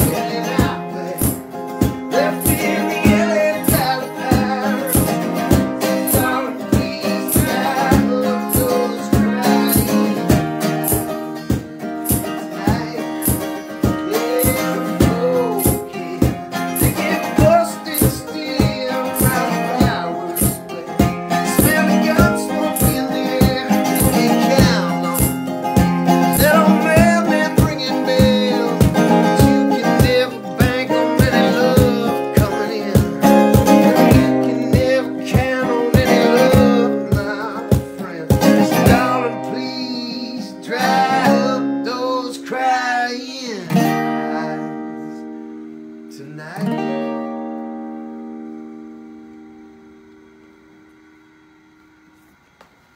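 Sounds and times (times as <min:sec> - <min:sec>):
mandolin playing: 0:00.0 - 0:32.5
acoustic guitar strumming: 0:00.0 - 0:52.7.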